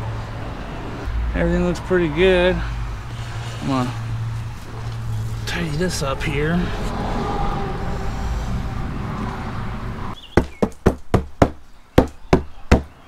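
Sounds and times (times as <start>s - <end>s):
sharp knocks and clacks: 10.4s - 12.9s.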